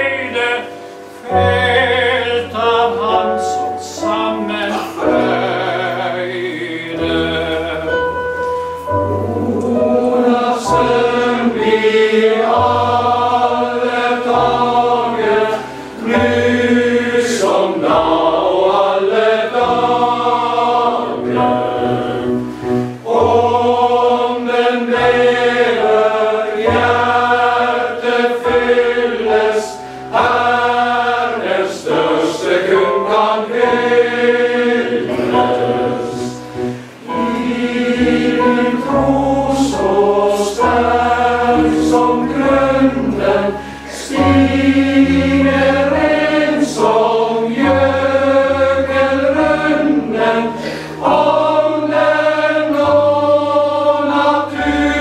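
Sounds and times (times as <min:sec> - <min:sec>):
male voice choir singing: 0:00.0 - 0:55.0
singers breathing: 0:29.8 - 0:30.2, 0:36.4 - 0:37.1, 0:43.5 - 0:44.1, 0:50.5 - 0:51.1.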